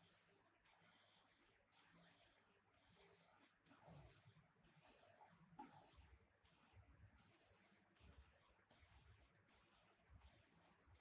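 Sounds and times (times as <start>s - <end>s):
spray gun hissing: 7.2s - 11.0s.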